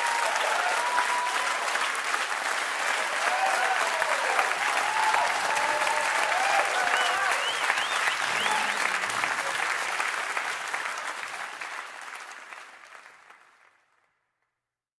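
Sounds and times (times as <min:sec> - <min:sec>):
high whoops: 0:00.0 - 0:01.8, 0:03.1 - 0:09.0
crowd applauding and cheering: 0:00.0 - 0:14.1.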